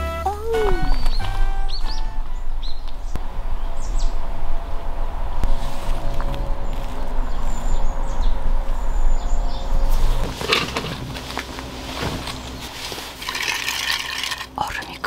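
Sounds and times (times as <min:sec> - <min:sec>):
wind rumble on microphone: 0:00.8 - 0:12.6
clothing and camping chair rustling: 0:05.5 - 0:07.7, 0:09.9 - 0:13.5.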